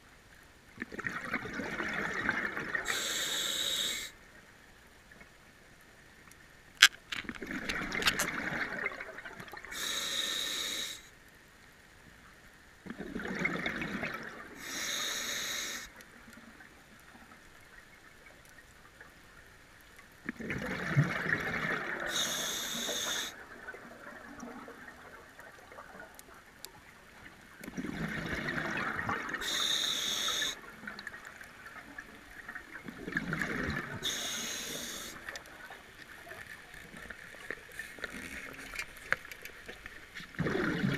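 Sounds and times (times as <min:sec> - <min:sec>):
exhaled bubbles underwater: 0:00.8 - 0:04.1, 0:07.4 - 0:10.0, 0:12.8 - 0:14.9, 0:20.2 - 0:37.2, 0:40.3 - 0:40.9
regulator inhale hiss: 0:02.9 - 0:04.2, 0:09.7 - 0:11.1, 0:14.6 - 0:16.0, 0:22.1 - 0:23.4, 0:29.4 - 0:30.6, 0:34.0 - 0:35.3.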